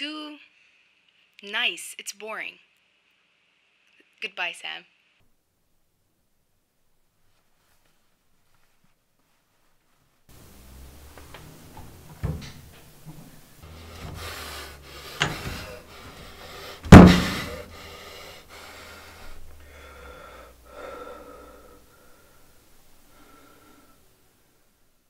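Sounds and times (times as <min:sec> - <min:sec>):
person breathing heavily with gasps: 0:13.6 - 0:24.2
sharp knocks: 0:13.7 - 0:16.2, 0:16.8 - 0:17.7
hard thump: 0:13.7 - 0:17.8.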